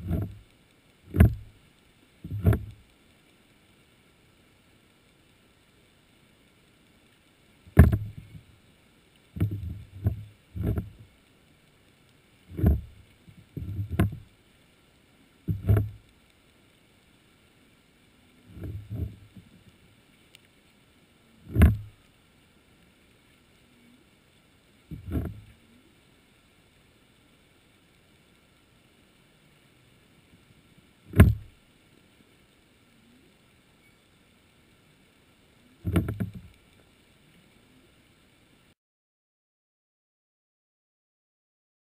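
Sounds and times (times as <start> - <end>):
muffled deep underwater thumps: 0.0 - 0.4, 1.1 - 1.6, 2.2 - 2.8, 7.7 - 8.5, 9.4 - 11.1, 12.5 - 14.3, 15.5 - 16.0, 18.5 - 19.5, 21.5 - 22.0, 24.9 - 25.5, 31.1 - 31.6, 35.8 - 36.5.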